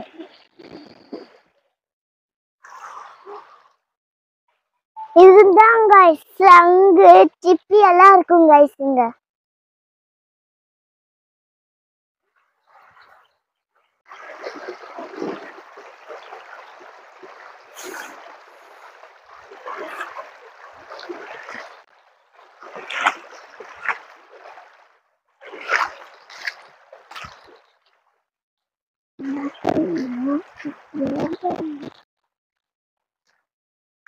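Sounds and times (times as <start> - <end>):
river water rushing: 14.1 - 21.8, 22.4 - 24.8
splashing footsteps in water: 14.1 - 28.1.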